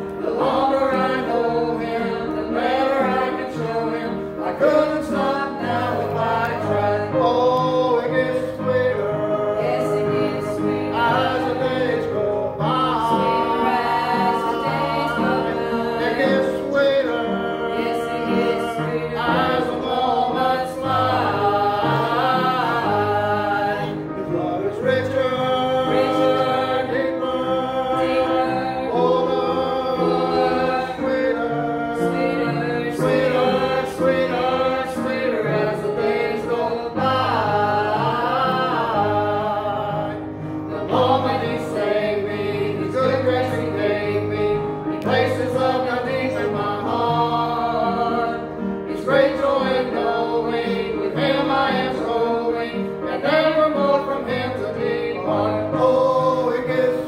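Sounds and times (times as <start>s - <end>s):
group singing gospel in harmony: 0.0s - 57.0s.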